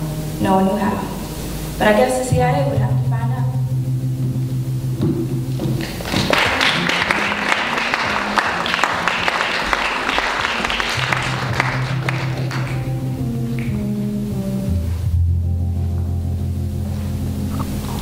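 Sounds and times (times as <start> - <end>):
low music tones: 0.0 - 18.0
audience applauding: 5.7 - 13.9.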